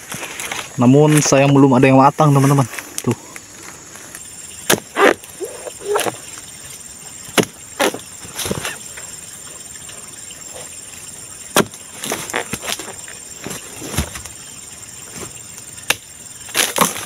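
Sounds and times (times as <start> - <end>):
insects buzzing: 0.0 - 17.0
chisel chopping palm stalk: 4.6 - 5.2, 7.3 - 8.8, 11.5 - 12.9, 15.8 - 17.0.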